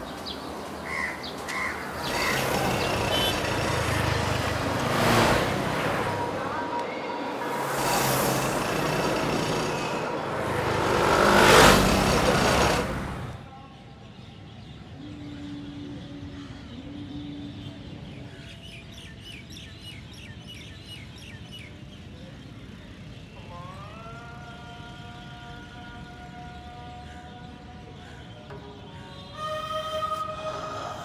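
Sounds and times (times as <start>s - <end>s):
vehicle passing close by: 0.0s - 13.4s.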